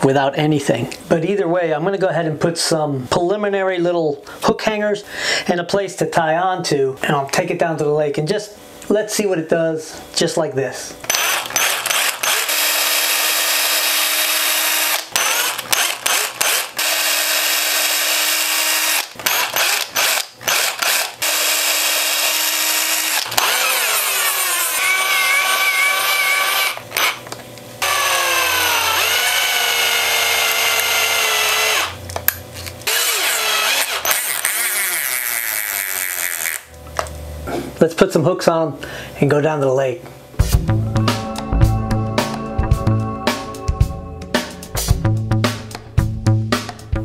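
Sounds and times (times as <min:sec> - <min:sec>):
cordless drill drilling: 0:11.1 - 0:27.2, 0:27.8 - 0:32.0, 0:32.6 - 0:36.7.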